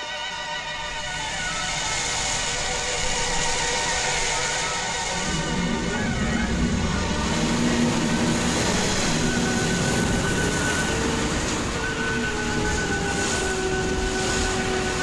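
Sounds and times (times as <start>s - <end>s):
held music notes: 0.0s - 15.0s
rushing wind: 0.0s - 15.0s
surging waves: 0.0s - 15.0s.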